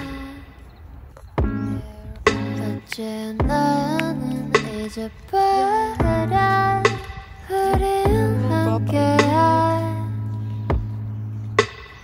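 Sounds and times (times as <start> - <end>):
melodic line with low bass: 1.4 - 4.8, 5.6 - 7.1, 7.8 - 11.8
low drum thump: 10.7 - 11.0.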